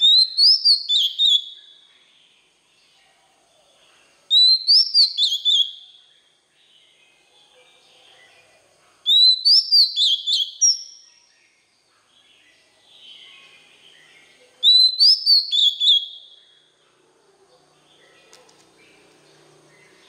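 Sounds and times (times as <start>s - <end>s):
bird singing high whistled notes: 0.0s - 2.0s, 4.3s - 6.2s, 9.0s - 11.6s, 14.6s - 16.7s.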